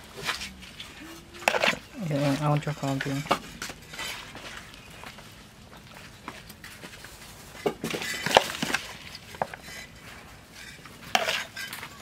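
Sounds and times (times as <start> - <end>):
metal spoon scraping plastic bowl: 0.2 - 4.8.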